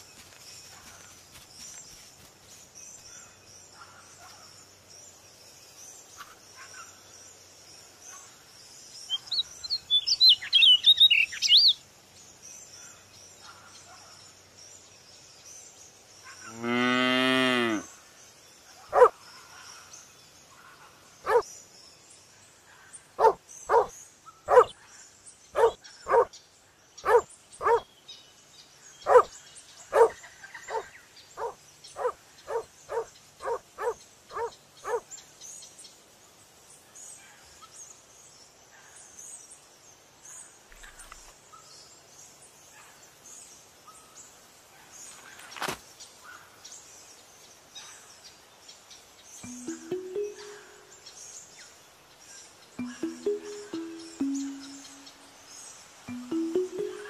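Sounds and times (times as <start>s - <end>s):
high bird chirps: 49.4s - 51.2s, 52.8s - 55.5s, 56.1s - 57.0s.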